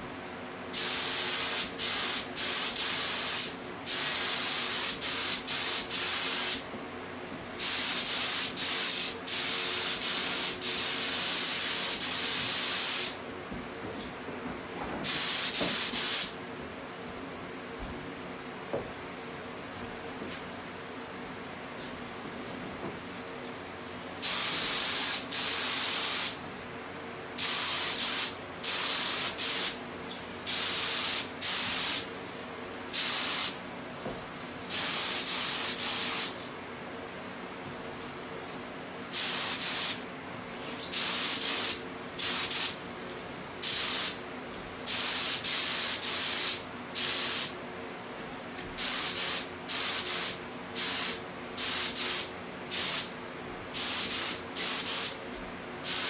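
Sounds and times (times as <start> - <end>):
spray gun hissing: 0.7 - 6.6, 15.0 - 16.4, 27.4 - 29.8, 30.4 - 32.1, 34.7 - 36.4, 39.1 - 40.0, 40.9 - 42.8, 48.8 - 53.1, 53.8 - 55.2.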